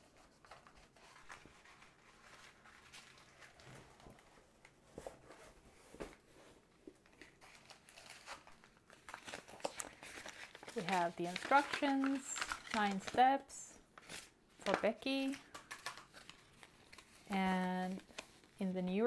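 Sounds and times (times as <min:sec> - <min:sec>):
plastic crinkles: 0:06.9 - 0:13.4, 0:14.0 - 0:18.6.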